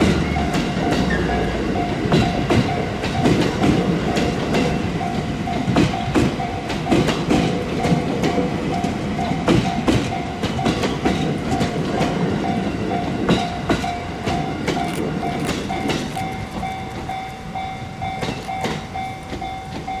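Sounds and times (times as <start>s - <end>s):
train wheels clicking over rail joints: 0.0s - 20.0s
level crossing bell ringing: 13.8s - 20.0s.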